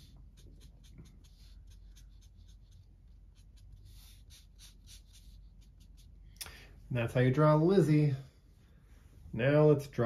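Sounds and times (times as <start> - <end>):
marker strokes on paper: 0.0 - 6.4.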